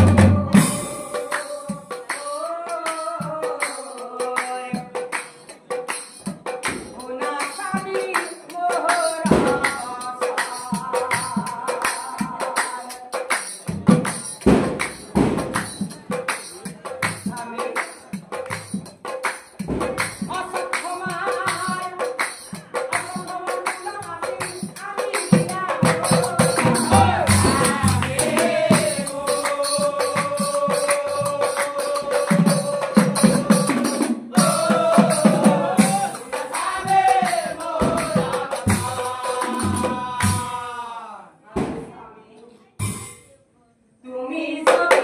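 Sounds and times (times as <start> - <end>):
drum beats: 0.0 - 40.9, 41.5 - 41.9, 42.8 - 43.4
group chanting in long held notes: 25.8 - 41.3.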